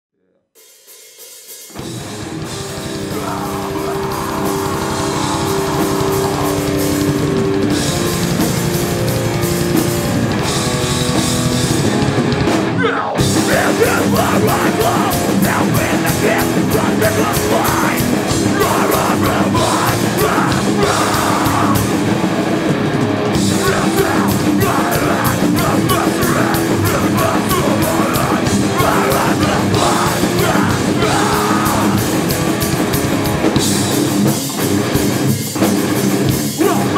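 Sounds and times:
drums: 0.4 - 36.9
bass guitar: 1.7 - 36.9
distorted guitars: 1.7 - 36.9
shouted vocals: 2.9 - 7.3, 12.8 - 22.1, 23.4 - 32.3, 36.6 - 36.9.

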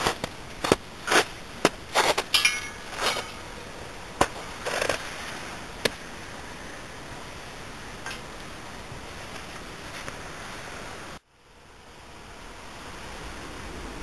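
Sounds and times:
footsteps crunching in snow: 0.0 - 3.6.

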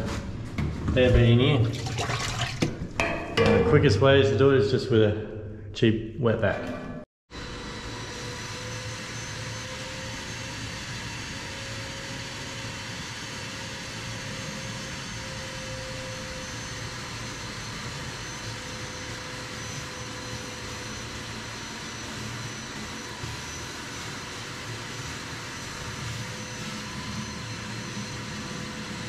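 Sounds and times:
nozzle sucking water: 1.6 - 2.9
wet dry vacuum whining: 7.4 - 29.0.

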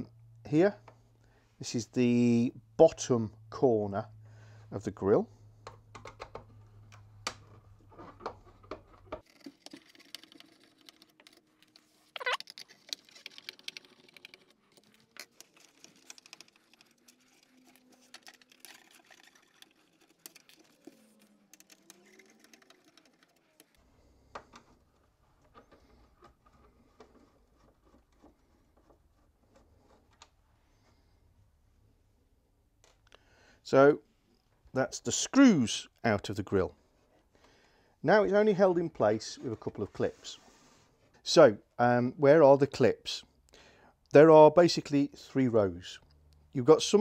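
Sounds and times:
sharp falling squeak: 12.2 - 12.4.

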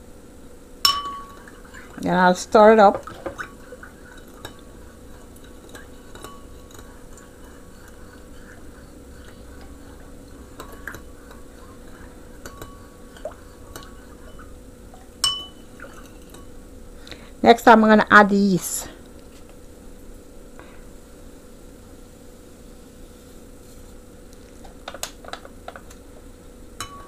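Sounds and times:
metal spoon scraping ceramic bowl: 3.3 - 14.5.

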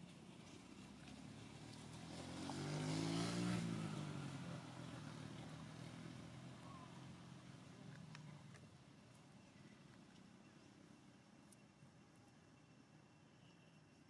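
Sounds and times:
vehicle engine passing by: 0.4 - 8.6.

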